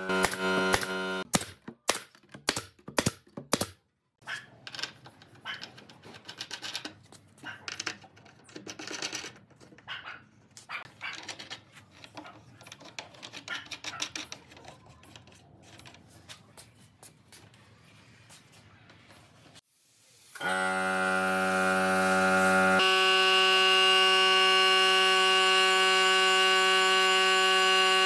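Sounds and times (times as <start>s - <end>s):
nail gun firing: 0.2s - 3.8s.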